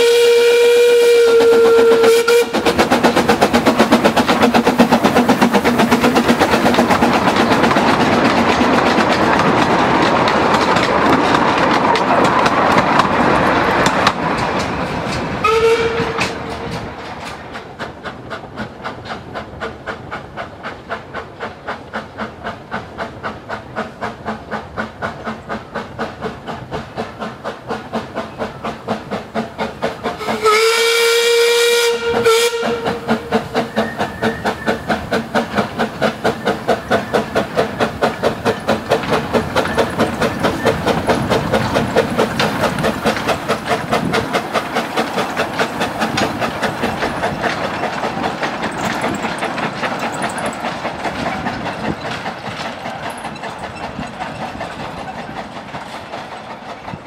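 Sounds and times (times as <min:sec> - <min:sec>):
steam whistle blast: 0:00.0 - 0:02.6, 0:15.4 - 0:16.4, 0:30.2 - 0:33.1
steam locomotive chuffing: 0:00.0 - 0:57.0.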